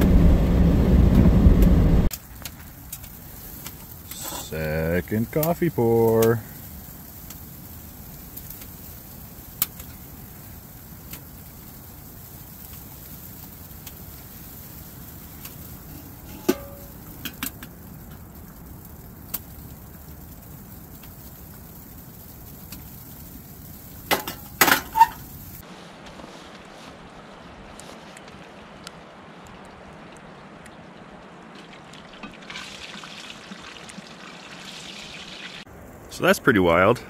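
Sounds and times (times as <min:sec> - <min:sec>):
metal clanks on stove: 0:04.1 - 0:04.5, 0:15.9 - 0:17.7, 0:24.1 - 0:25.2.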